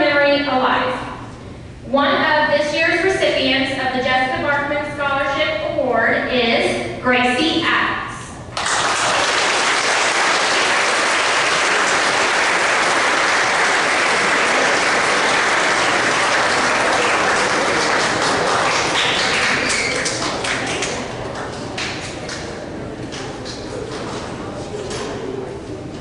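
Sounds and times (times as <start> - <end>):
audience clapping: 8.5 - 24.0.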